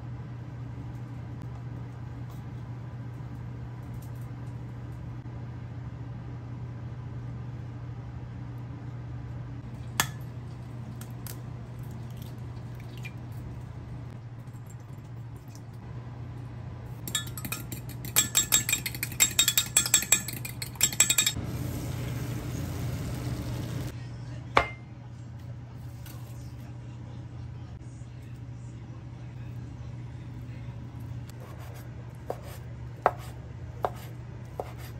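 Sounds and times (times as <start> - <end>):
steady low hum: 0.0 - 34.9
utensil clinking against glass: 17.1 - 21.4.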